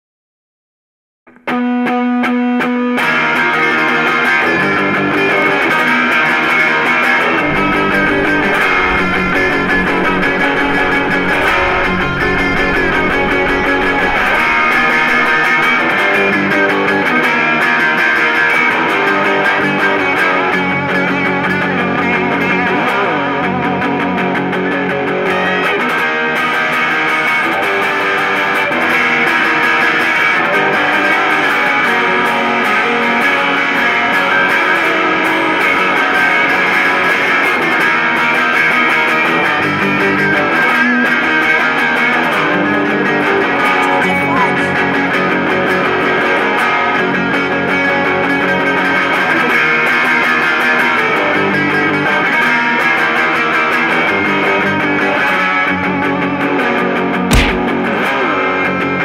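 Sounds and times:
punk rock with distorted guitar: 1.3 - 26.4, 57.3 - 57.9.

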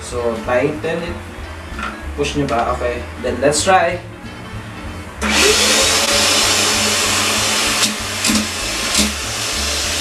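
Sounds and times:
handheld vacuum cleaner running: 5.2 - 10.0.

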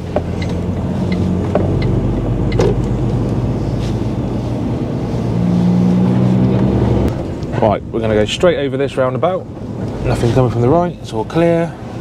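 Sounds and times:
diesel truck engine drone: 0.0 - 12.0.

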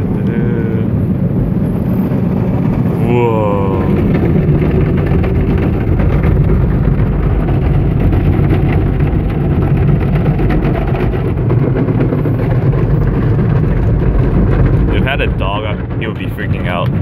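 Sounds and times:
car wash water pouring over car: 0.0 - 17.0.

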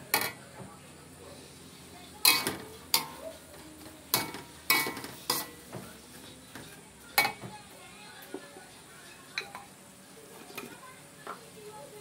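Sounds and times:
metal spatula clanking in wok: 2.2 - 3.2, 4.1 - 5.6.

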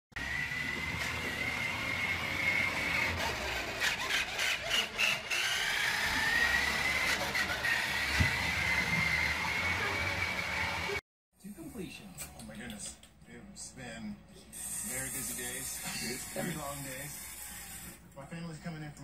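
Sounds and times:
toy truck electric motor whining: 0.2 - 11.0, 14.6 - 18.0.

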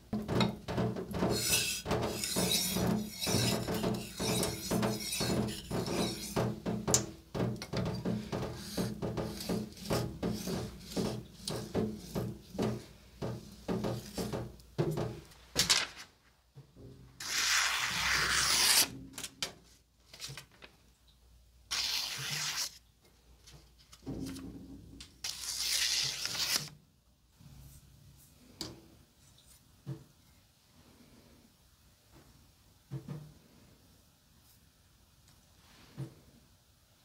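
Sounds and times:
knife blade stroked on whetstone: 1.3 - 6.4, 8.6 - 12.3.

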